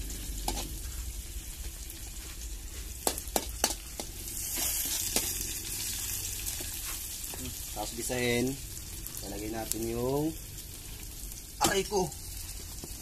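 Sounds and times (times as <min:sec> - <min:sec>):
vegetables sizzling in a wok: 0:00.0 - 0:13.0
metal spatula scraping a wok: 0:00.1 - 0:01.0, 0:03.6 - 0:07.1
spatula knocking on a wok: 0:03.0 - 0:04.1.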